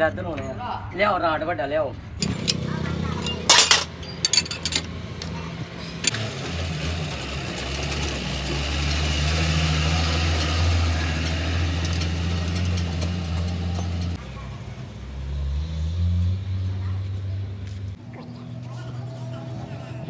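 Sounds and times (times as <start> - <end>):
wrench clinking on metal: 2.2 - 6.2.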